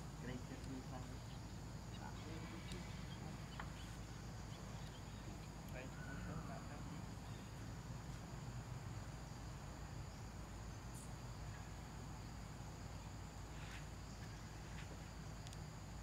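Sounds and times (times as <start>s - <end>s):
insects droning: 0.0s - 16.0s
low background rumble: 0.0s - 16.0s
faint ticks: 14.2s - 16.0s.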